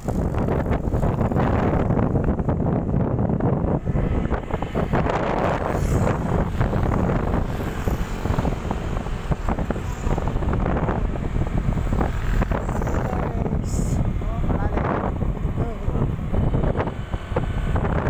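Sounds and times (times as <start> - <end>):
road noise: 0.0 - 18.0
wind buffeting microphone: 0.0 - 18.0.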